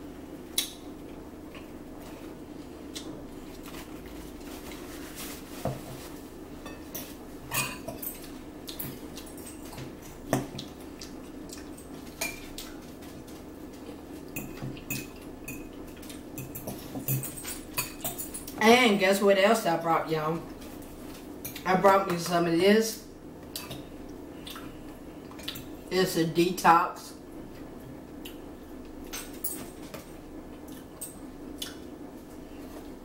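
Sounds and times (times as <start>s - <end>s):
forks clinking on plates: 14.4s - 18.5s.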